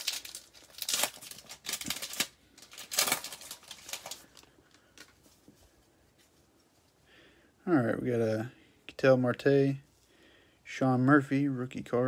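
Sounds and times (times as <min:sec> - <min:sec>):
foil wrapper crinkling and tearing: 0:00.0 - 0:05.1.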